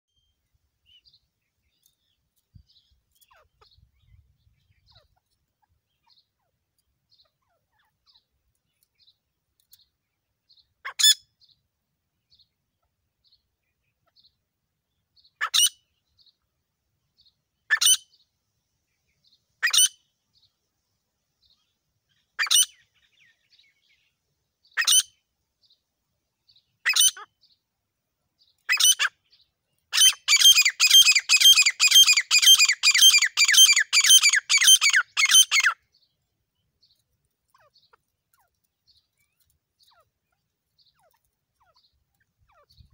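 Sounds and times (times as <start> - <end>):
francolin calling shrill notes: 30.0 - 35.8.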